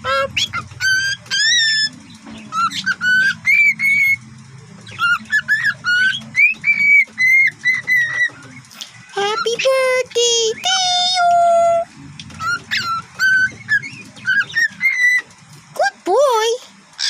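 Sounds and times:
cockatiel whistling: 0.0s - 4.2s, 4.9s - 8.6s, 10.5s - 15.3s.

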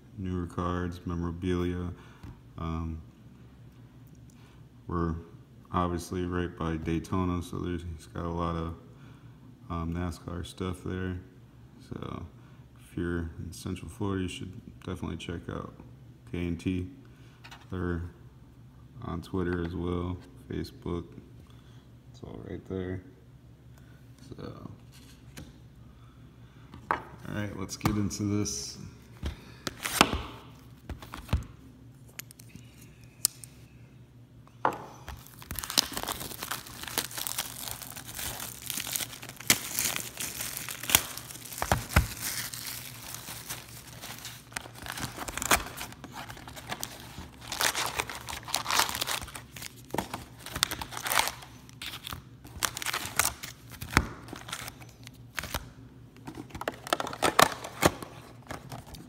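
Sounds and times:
shrink wrap crinkling: 35.0s - 55.7s.

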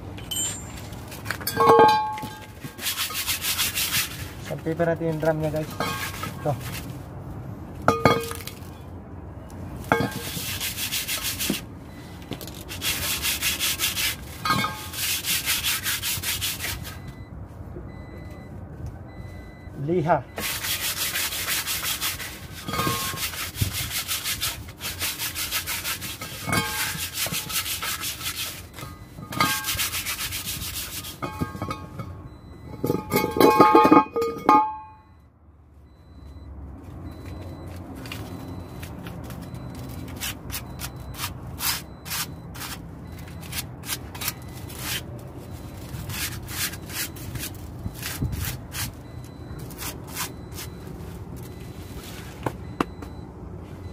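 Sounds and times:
sandpaper rubbing on metal: 2.7s - 4.4s, 10.0s - 11.6s, 12.7s - 17.0s, 20.4s - 31.4s.

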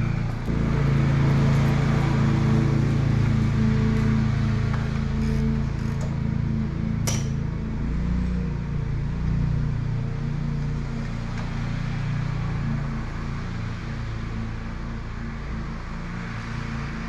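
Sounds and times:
lawn mower engine running: 0.0s - 16.4s.

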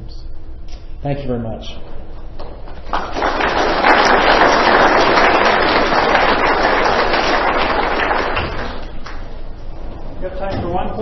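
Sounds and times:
audience applauding: 2.4s - 9.3s.

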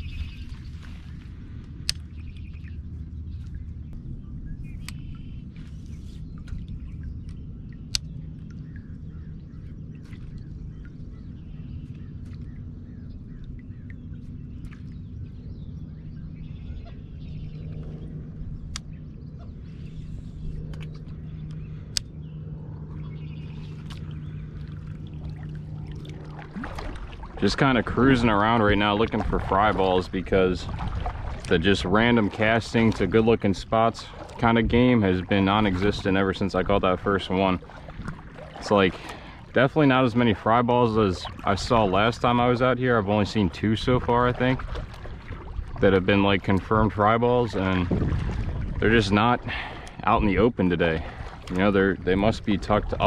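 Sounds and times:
low steady hum: 0.0s - 53.0s
faint bird chirps: 2.1s - 24.6s
paddle knocking plastic hull: 24.7s - 33.2s, 43.9s - 46.7s, 47.8s - 48.8s.

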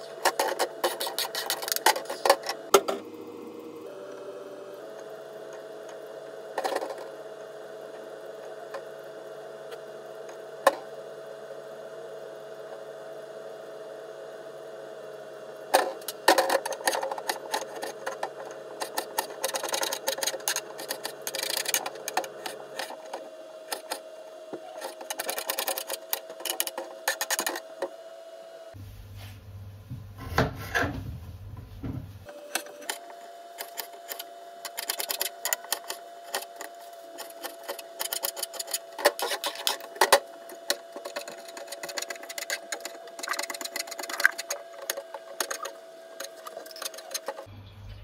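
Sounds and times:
steady hum: 0.0s - 48.0s.

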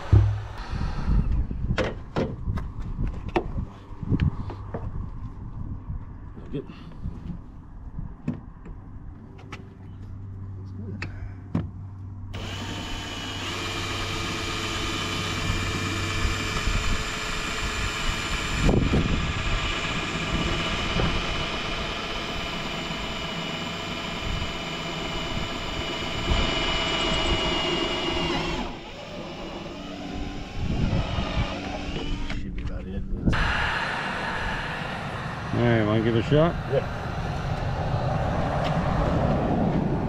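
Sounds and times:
power tool motor running: 0.0s - 1.1s, 12.4s - 32.5s, 33.3s - 37.8s.

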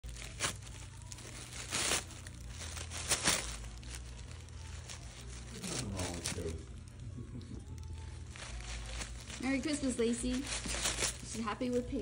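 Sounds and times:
tissue paper crinkling: 0.0s - 12.0s.

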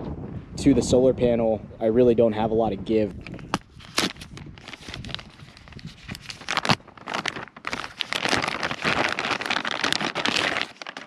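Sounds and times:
plastic bag crinkling: 3.2s - 11.0s.

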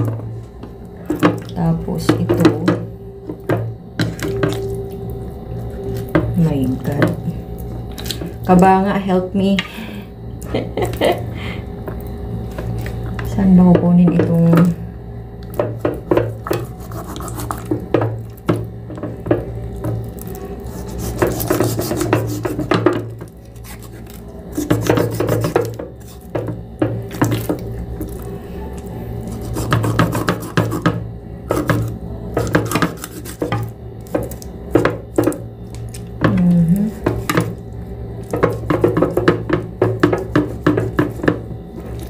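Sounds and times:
knife hacking chicken: 20.7s - 23.0s, 23.6s - 26.1s, 29.3s - 35.4s.

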